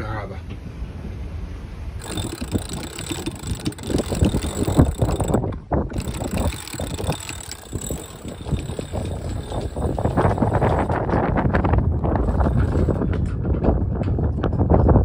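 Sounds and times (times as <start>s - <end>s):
wind on microphone: 1.8s - 15.0s
winch ratcheting clicks: 2.0s - 11.0s.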